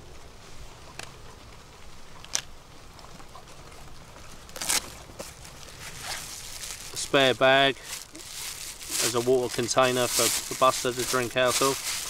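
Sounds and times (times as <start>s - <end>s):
short rustle: 4.5s - 12.0s
hands rummaging in backpack: 4.6s - 12.0s.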